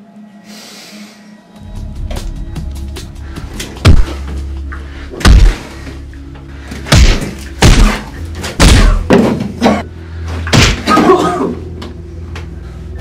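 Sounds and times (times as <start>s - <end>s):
low background music: 0.0s - 13.0s
heavy punch thuds: 5.2s - 5.6s, 6.9s - 9.4s.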